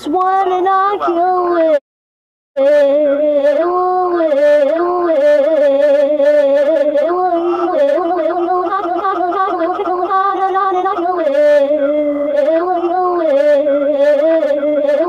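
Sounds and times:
young person singing a long note: 0:02.6 - 0:15.0.

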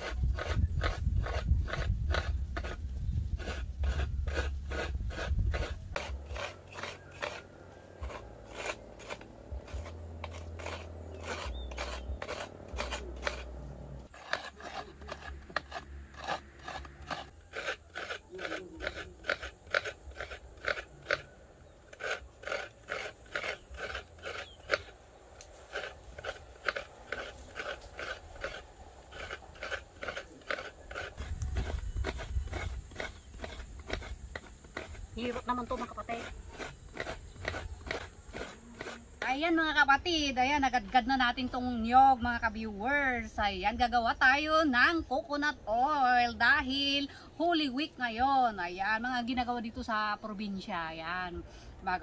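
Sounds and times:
coconut being grated: 0:00.0 - 0:41.0.

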